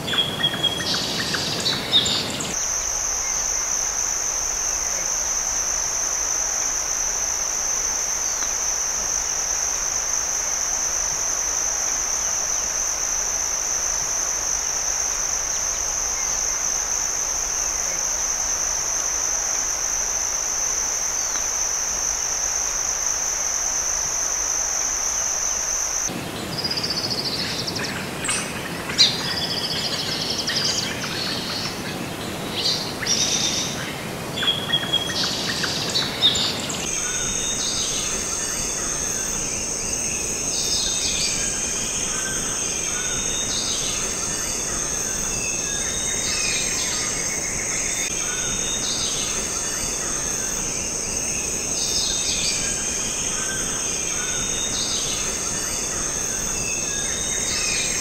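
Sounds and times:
birds chirping: 0.0s - 2.6s
insects droning: 0.0s - 58.0s.

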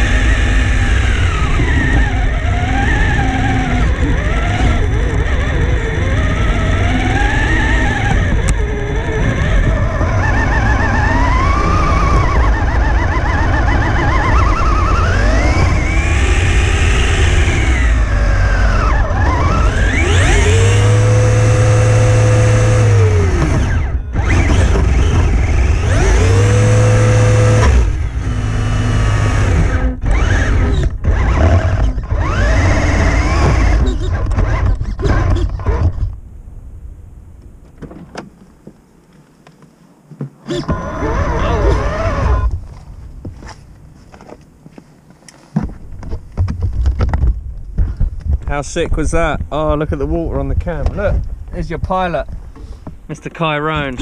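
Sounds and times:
electric motor and gearbox whining: 0.0s - 36.3s, 39.4s - 44.6s.

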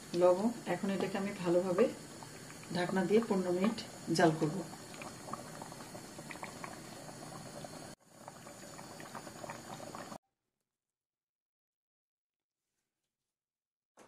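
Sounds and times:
rice and water boiling: 0.0s - 10.2s.

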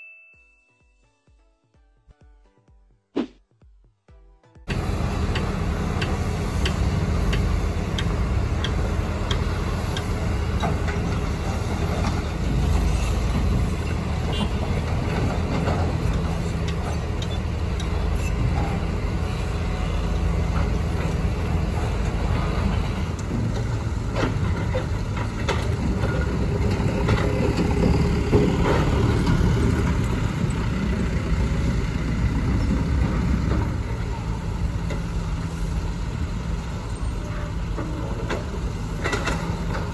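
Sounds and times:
diesel engines rumbling: 4.7s - 39.9s.

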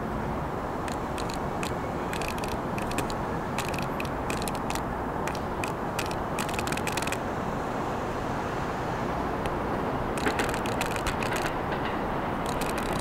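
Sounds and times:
subway train rumbling: 0.0s - 13.0s
train wheels clicking and clacking: 0.9s - 7.2s, 10.2s - 13.0s.

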